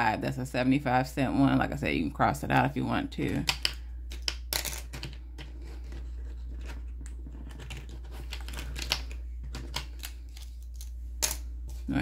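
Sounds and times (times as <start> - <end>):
steady low hum: 0.0 - 12.0
small objects clicking on tabletop: 3.4 - 5.5.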